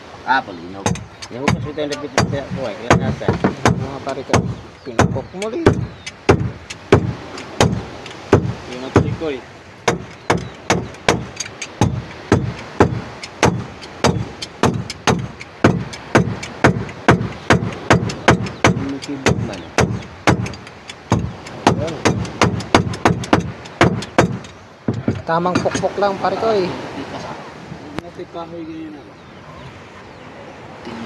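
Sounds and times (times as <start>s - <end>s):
hammer tapping on metal plate: 9.9s - 25.9s.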